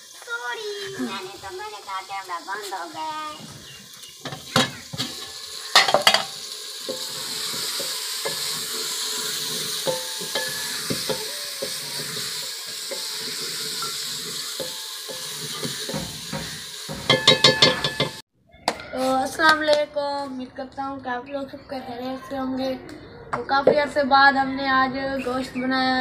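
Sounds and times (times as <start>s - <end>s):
curry sizzling in a pot: 0.0s - 18.2s
metal ladle clinking against pot: 9.8s - 11.8s, 16.9s - 18.2s.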